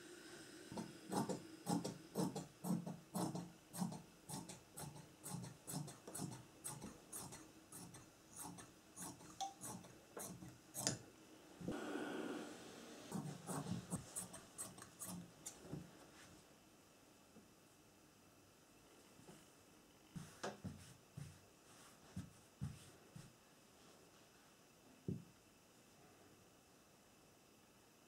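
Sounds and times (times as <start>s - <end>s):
shears snipping fabric: 1.1s - 11.0s.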